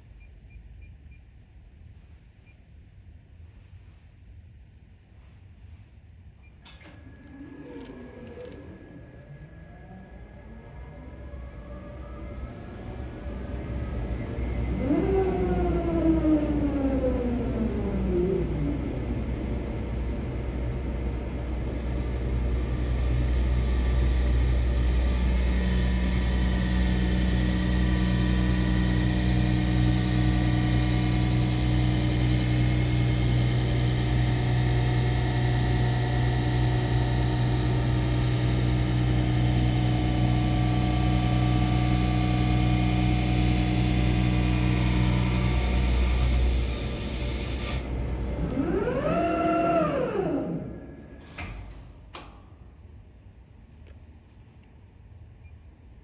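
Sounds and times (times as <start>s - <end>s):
machine winding down tone: 6.8s - 51.6s
lathe hum and hiss: 7.4s - 51.2s.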